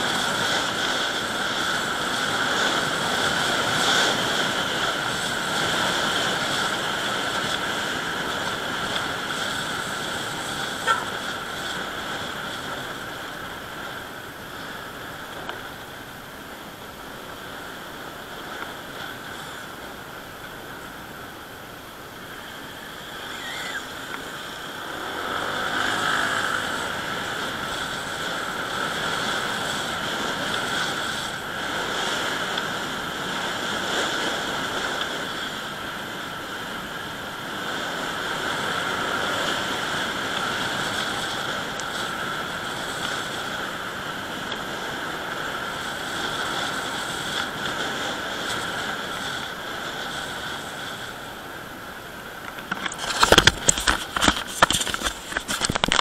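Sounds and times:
motorcycle engine running: 0:00.0 - 0:15.9, 0:22.4 - 0:34.7
wind rushing over microphone: 0:00.0 - 0:56.0.

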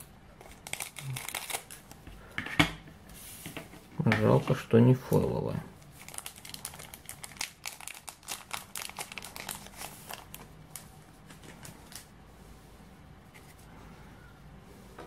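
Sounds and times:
foil wrapper crinkling: 0:00.4 - 0:02.0, 0:05.8 - 0:12.1.

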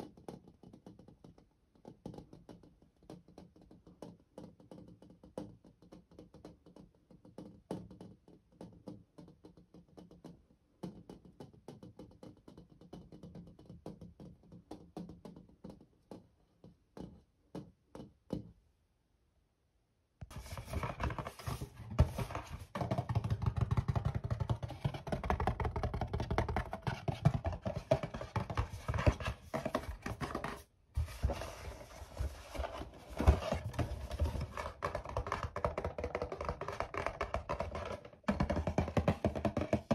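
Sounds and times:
tapping on a box: 0:20.2 - 0:39.9.

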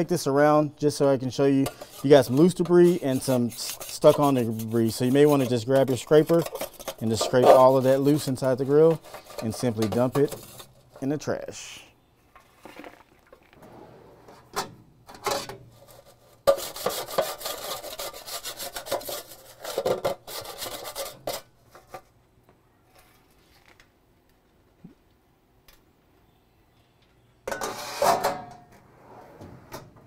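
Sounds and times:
metal scraping: 0:00.9 - 0:11.4
scraper rasping on steel tray: 0:01.6 - 0:10.8, 0:15.8 - 0:21.4.

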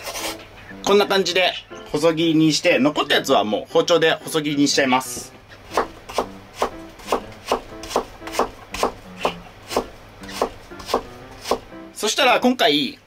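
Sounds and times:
knife chopping on wooden board: 0:05.7 - 0:11.7.

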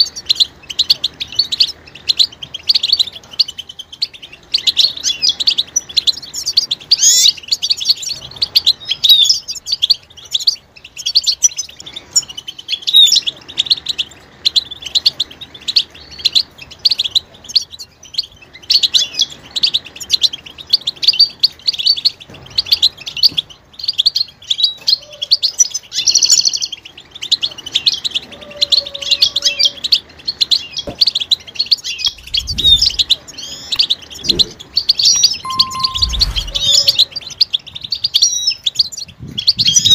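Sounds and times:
finches twittering: 0:31.6 - 0:37.2.

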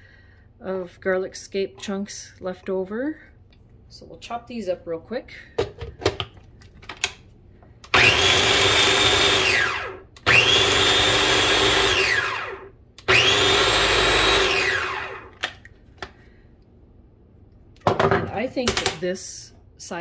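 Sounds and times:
food processor motor whining: 0:07.9 - 0:15.4.

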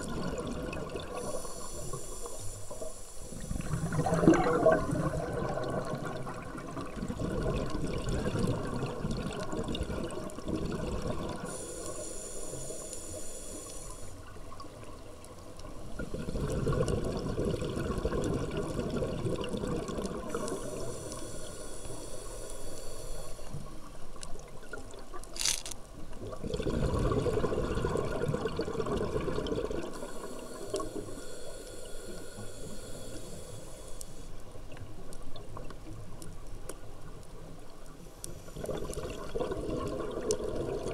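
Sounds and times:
exhaled bubbles gushing: 0:00.0 - 0:01.5, 0:03.4 - 0:11.6, 0:16.0 - 0:20.9, 0:26.2 - 0:30.4, 0:38.5 - 0:40.9
regulator hissing inhale: 0:01.1 - 0:04.1, 0:11.3 - 0:14.2, 0:20.2 - 0:23.7, 0:29.9 - 0:34.4.

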